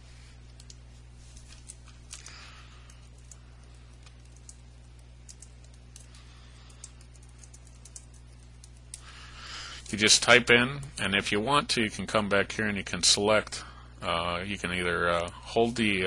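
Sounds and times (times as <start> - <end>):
low electrical hum: 0.0 - 16.0.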